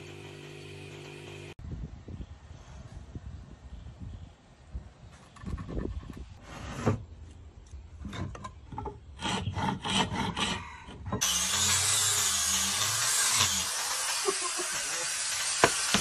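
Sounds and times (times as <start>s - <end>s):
hand tools scraping on wood: 9.2s - 11.3s
electric orbital sander running: 11.2s - 16.0s.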